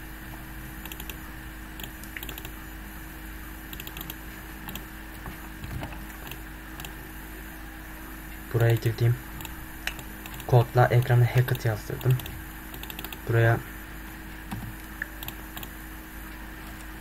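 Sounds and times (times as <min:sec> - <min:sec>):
low electrical hum: 0:00.0 - 0:17.0
computer keyboard and mouse clicks: 0:00.8 - 0:01.2, 0:01.8 - 0:02.6, 0:03.7 - 0:04.8, 0:05.6 - 0:07.0, 0:09.4 - 0:10.5, 0:12.0 - 0:13.2, 0:14.5 - 0:15.7.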